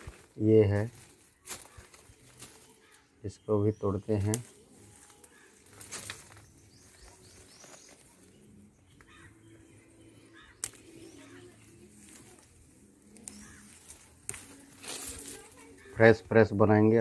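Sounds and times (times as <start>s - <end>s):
faint bird calls: 1.4s - 3.2s, 4.9s - 16.2s
plant stem snapping: 4.3s - 4.5s, 10.4s - 11.2s, 12.0s - 15.4s.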